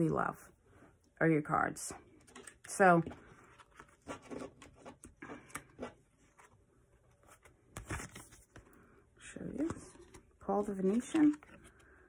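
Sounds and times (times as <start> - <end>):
cards rustling: 2.1 - 8.9, 9.6 - 12.0.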